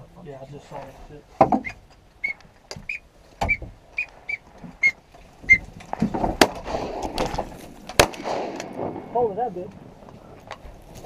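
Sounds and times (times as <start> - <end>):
high whistled peeps: 1.6 - 5.6
shotgun blasts: 6.4 - 9.4.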